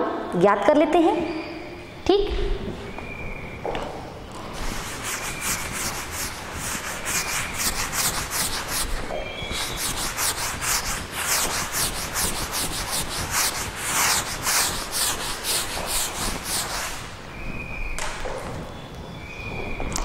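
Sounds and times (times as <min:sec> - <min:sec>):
scratchy writing on a board: 0:04.6 - 0:17.0.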